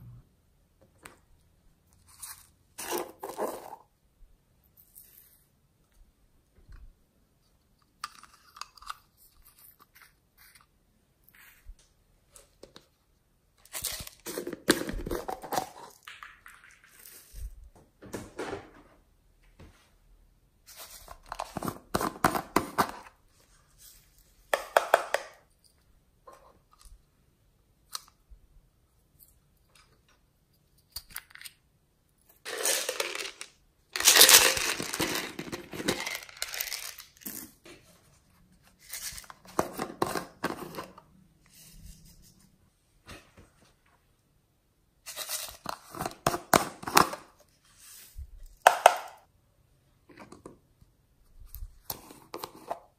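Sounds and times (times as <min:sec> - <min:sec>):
plastic tubs crackling: 0:13.7 - 0:17.4, 0:32.4 - 0:37.7.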